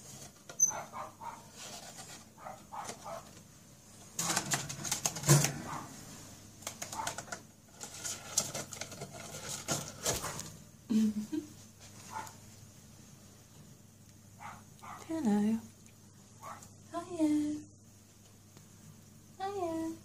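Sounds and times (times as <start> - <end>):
cardboard rustling and scraping: 1.4 - 3.3, 7.0 - 10.6
bird scrabbling and flapping: 4.2 - 5.9, 6.6 - 10.5.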